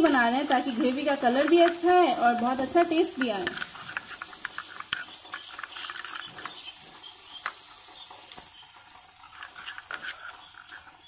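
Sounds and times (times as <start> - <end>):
spoon scraping glass bowl: 1.4 - 7.6, 9.2 - 11.0.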